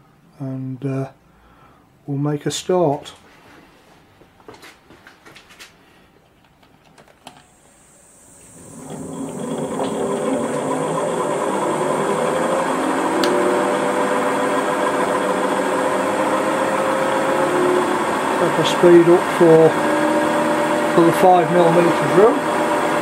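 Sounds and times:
milling machine spindle motor: 0:07.8 - 0:23.0.

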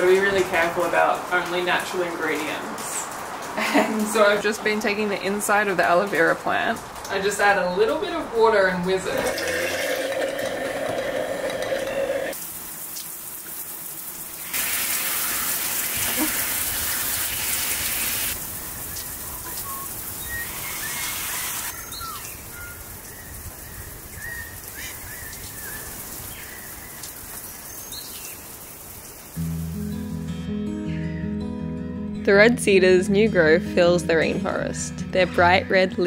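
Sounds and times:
stick blender whirring: 0:09.2 - 0:12.4
falling water from shower: 0:09.2 - 0:21.8
birds chirping: 0:18.6 - 0:28.6.

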